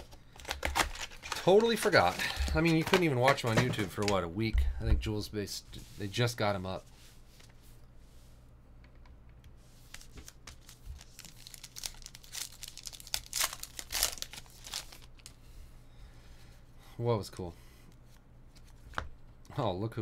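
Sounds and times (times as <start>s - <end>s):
card pack wrapper crinkling and tearing: 0.0s - 4.2s, 9.9s - 15.4s.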